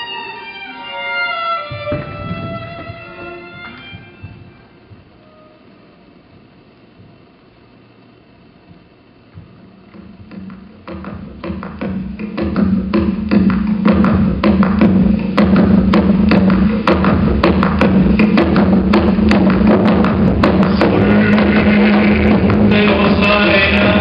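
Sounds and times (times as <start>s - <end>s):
sharp drum beats: 9.4s - 24.0s.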